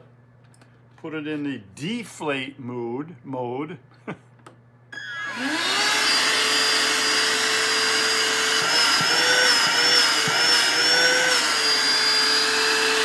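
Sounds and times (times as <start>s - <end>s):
pump motor whirring and whining: 5.0s - 13.0s.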